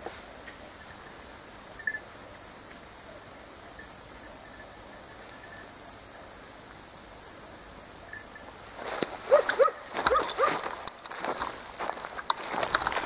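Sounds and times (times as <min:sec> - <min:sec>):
dogs yelping and baying: 0:09.3 - 0:10.8.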